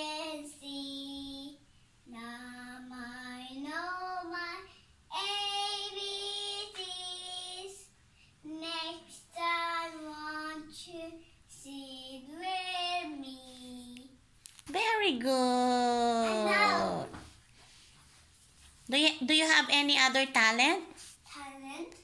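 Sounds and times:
girl singing unaccompanied: 0.0s - 14.2s.

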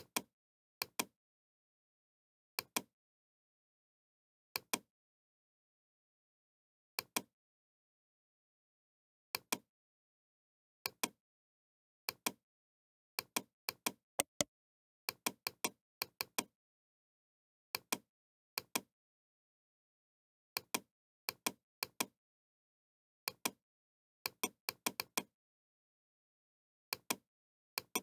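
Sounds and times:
computer mouse clicking: 14.2s - 14.4s.

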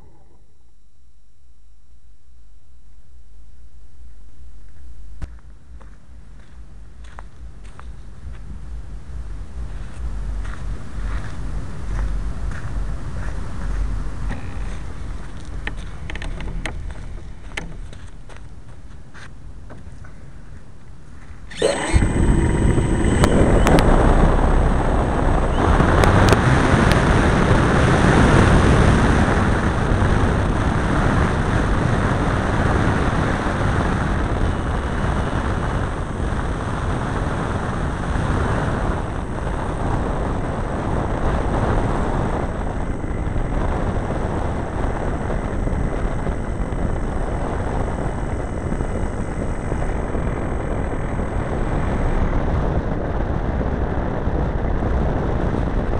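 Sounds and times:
model airplane engine and propeller: 21.5s - 55.9s
wind rushing: 21.5s - 55.9s.

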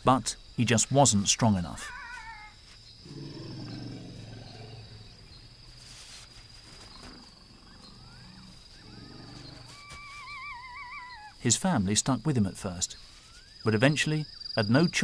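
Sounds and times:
high insect drone: 0.1s - 15.0s
deep animal rumble: 3.0s - 9.9s
bird-like calls: 6.7s - 11.4s.

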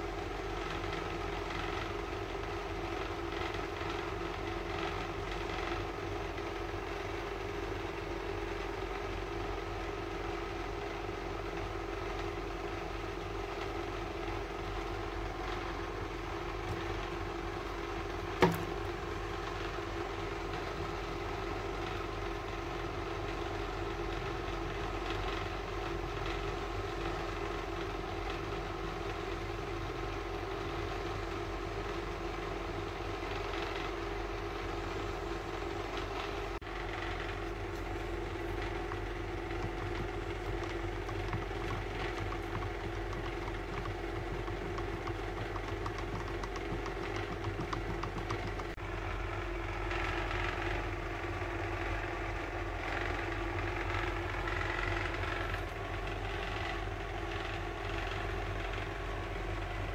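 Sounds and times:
motor humming: 33.4s - 59.9s.

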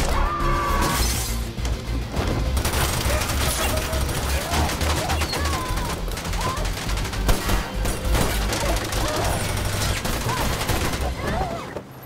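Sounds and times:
action film score: 0.0s - 12.0s
automatic gunfire: 2.6s - 11.2s.

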